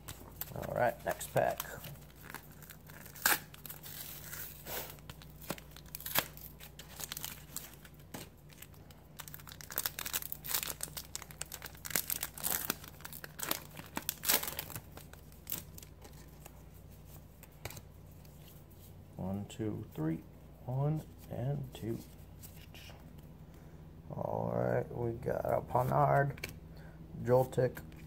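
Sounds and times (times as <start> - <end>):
foil wrapper tearing and crinkling: 0.3 - 16.1.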